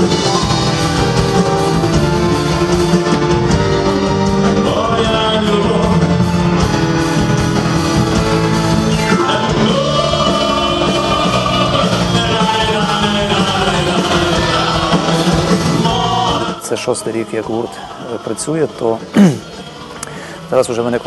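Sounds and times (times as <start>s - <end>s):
rock band with string orchestra: 0.0s - 21.0s
man singing: 4.5s - 6.7s, 9.0s - 19.6s, 20.5s - 21.0s.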